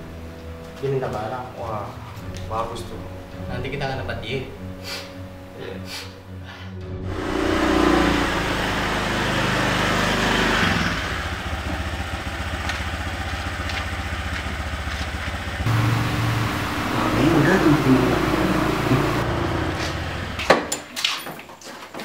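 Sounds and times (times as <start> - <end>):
motorcycle engine idling: 11.1 - 20.4.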